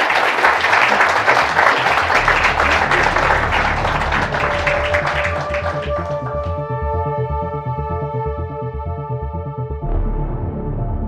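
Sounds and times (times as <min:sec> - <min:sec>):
audience applauding: 0:00.0 - 0:06.6
steady held music tones: 0:00.0 - 0:09.7
pulsing bass notes: 0:01.2 - 0:11.0.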